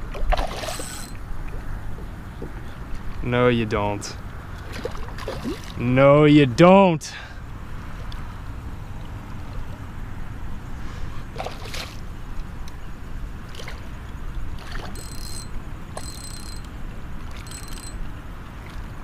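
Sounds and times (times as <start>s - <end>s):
water sloshing: 0.0s - 3.3s, 4.2s - 6.0s, 11.3s - 12.6s, 13.4s - 16.1s
fish thrashing at water surface: 4.6s - 5.8s
sharp splashes: 4.7s - 5.8s, 11.3s - 12.0s.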